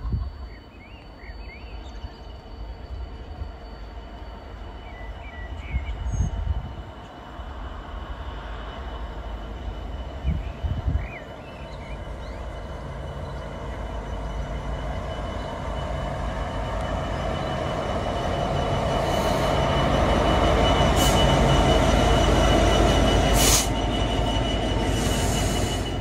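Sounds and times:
diesel locomotive engine rumbling: 0.0s - 26.0s
wind gusts on microphone: 5.4s - 9.0s, 9.6s - 11.4s
birds chirping: 9.5s - 20.7s.

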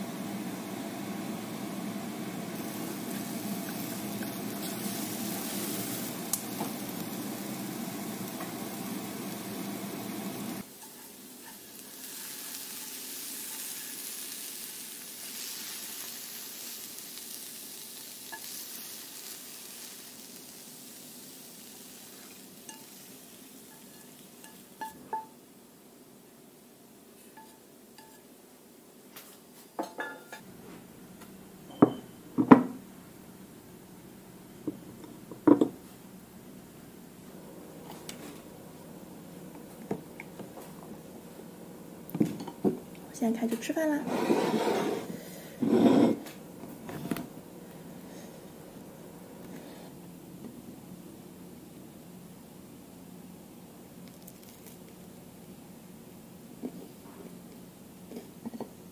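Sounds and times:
egg and mushrooms sizzling in pan: 0.0s - 25.4s
quiet hiss: 0.0s - 58.9s.

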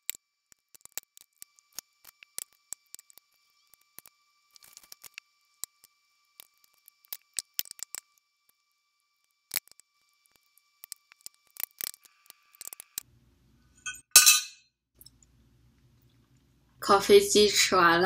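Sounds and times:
fork clattering into glass dish: 13.9s - 14.6s.

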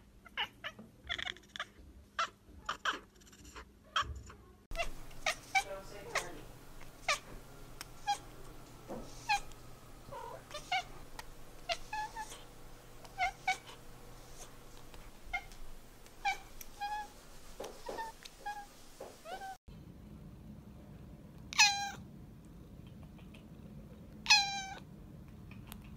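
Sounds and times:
cat meowing: 4.0s - 7.3s, 7.9s - 8.3s, 8.9s - 9.5s, 10.1s - 14.6s, 15.2s - 15.6s, 16.2s - 17.1s, 17.7s - 19.6s, 21.5s - 22.0s, 24.3s - 24.8s.

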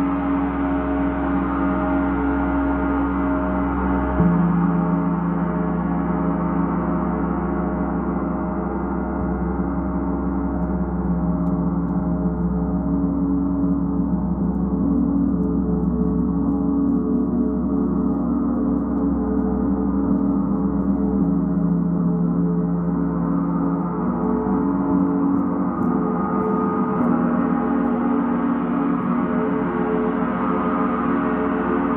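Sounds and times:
gong ringing: 4.0s - 6.8s.

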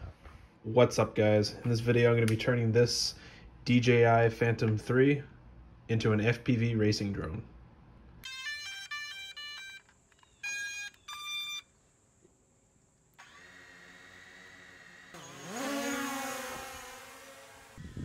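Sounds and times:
short electronic beeps: 8.9s - 11.7s
drone motors humming and whining: 10.2s - 18.0s.

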